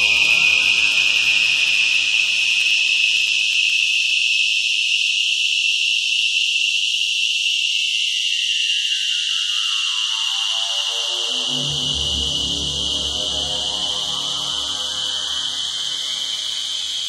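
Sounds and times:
shrill synthesized whine: 0:00.0 - 0:03.9, 0:07.7 - 0:17.0
low stacked synth tones: 0:11.2 - 0:17.0.

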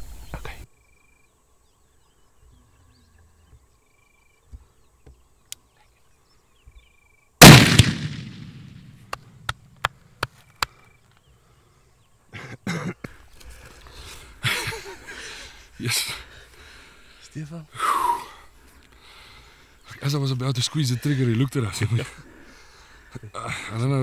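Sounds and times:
rifle shot with echo: 0:07.4 - 0:09.2.

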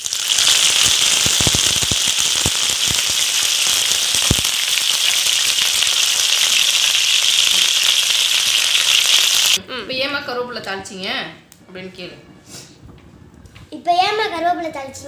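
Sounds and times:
leaves sizzling in hot oil: 0:00.0 - 0:09.6
sharp popping in oil: 0:00.2 - 0:06.5.

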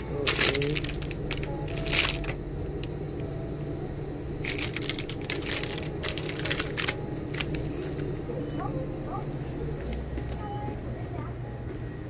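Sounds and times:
plastic wrapper crinkling: 0:00.0 - 0:02.4, 0:04.4 - 0:07.8
steady low hum: 0:00.0 - 0:12.0.

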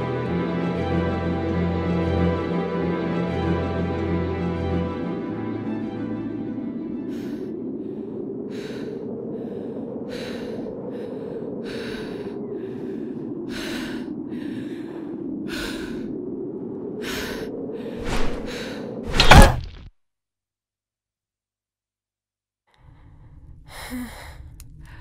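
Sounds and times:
howling wind: 0:00.0 - 0:19.8, 0:22.8 - 0:25.0
heavy thuds: 0:19.1 - 0:19.9.

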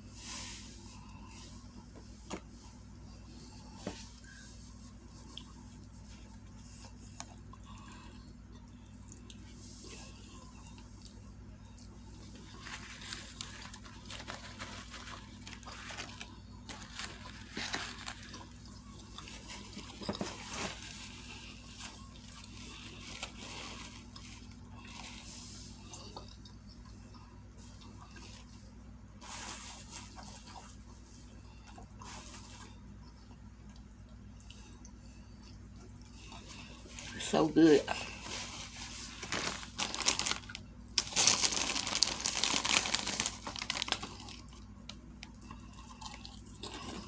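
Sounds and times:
faint low hum: 0:00.0 - 0:47.0
person chewing and eating: 0:05.2 - 0:28.6, 0:43.2 - 0:47.0.

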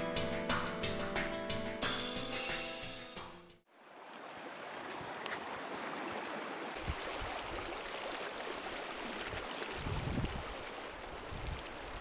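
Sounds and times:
creek water rushing: 0:03.7 - 0:12.0.

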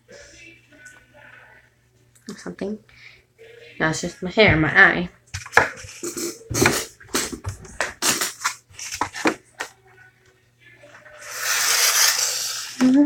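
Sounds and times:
rushing hiss: 0:11.2 - 0:12.8.

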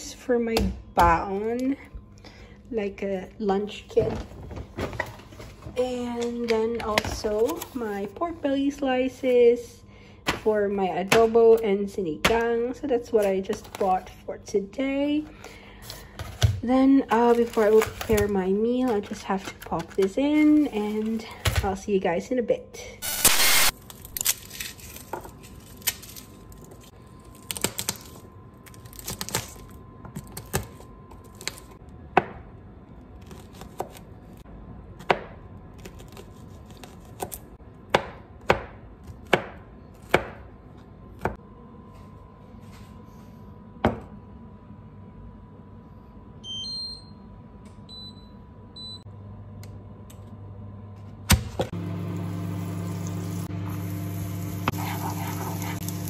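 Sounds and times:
even hum: 0:00.0 - 0:56.0
wooden spoon stirring pan: 0:54.7 - 0:56.0.

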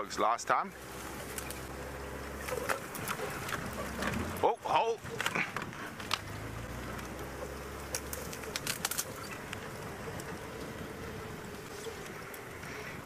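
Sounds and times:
vehicle engine hum: 0:00.0 - 0:13.0
dove cooing: 0:01.1 - 0:04.3, 0:07.3 - 0:13.0.

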